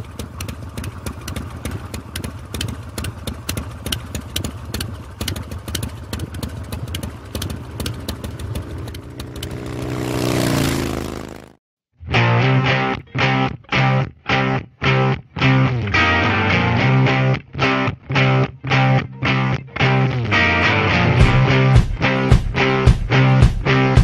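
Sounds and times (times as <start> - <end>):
motorcycle engine idling: 0.0 - 11.5.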